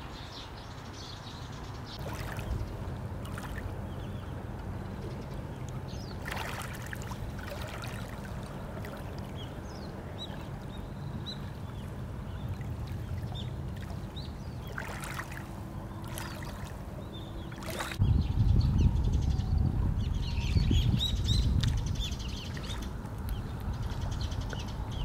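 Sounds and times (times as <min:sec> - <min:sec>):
water birds calling: 0:00.0 - 0:25.0
water splashes: 0:02.0 - 0:18.0
steady low rumble: 0:02.0 - 0:25.0.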